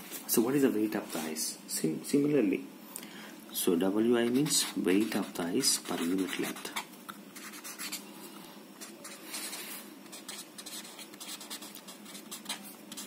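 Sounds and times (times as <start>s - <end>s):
marker scratching on paper: 4.2s - 8.0s, 8.8s - 13.0s.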